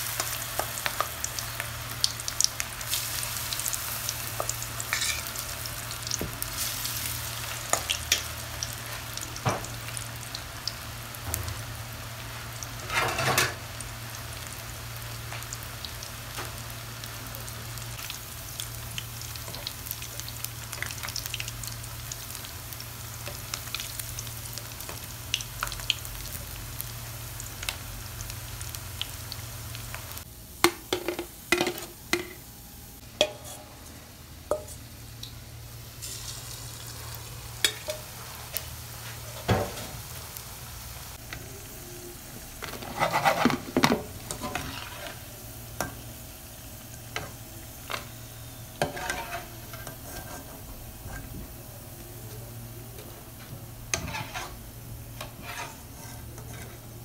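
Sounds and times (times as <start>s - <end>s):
deep-frying sizzle in hot oil: 0.0s - 32.3s, 32.9s - 57.0s
metal spatula scraping a pan: 4.9s - 5.4s, 33.2s - 33.7s, 42.6s - 45.2s, 48.8s - 51.3s, 53.9s - 54.6s, 55.2s - 56.8s.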